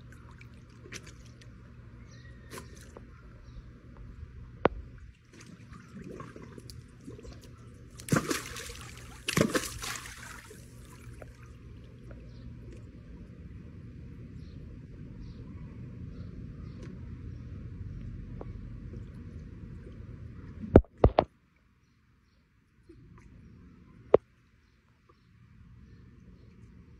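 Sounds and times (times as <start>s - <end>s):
water sloshing and splashing: 0.0s - 3.2s, 4.7s - 13.0s.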